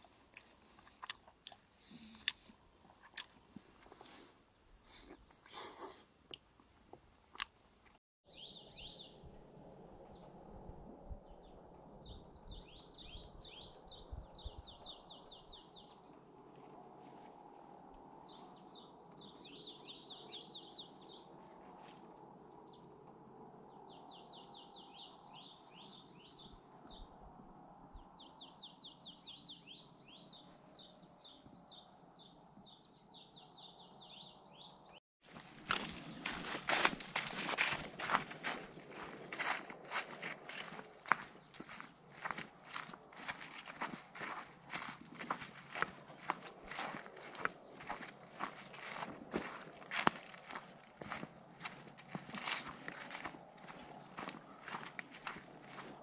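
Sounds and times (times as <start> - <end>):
small songbird singing: 8.3 - 9.2, 11.3 - 16.1, 18.1 - 21.3, 28.1 - 35.0.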